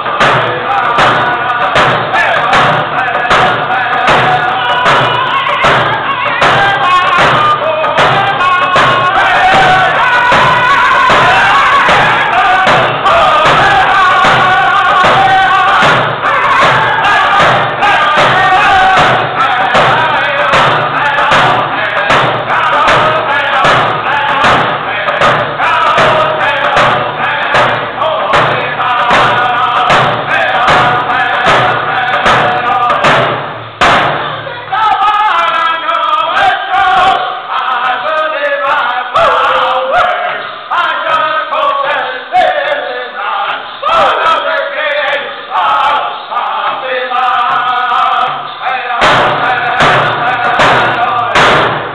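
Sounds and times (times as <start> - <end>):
hand drums beating: 0.0 - 34.4, 49.0 - 51.9
men singing: 0.0 - 51.9.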